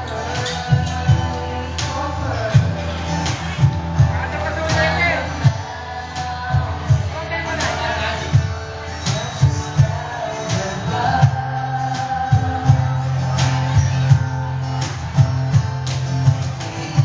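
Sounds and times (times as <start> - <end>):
women singing into microphones: 0.0 - 3.0, 9.8 - 14.1
strummed guitar: 0.0 - 17.0.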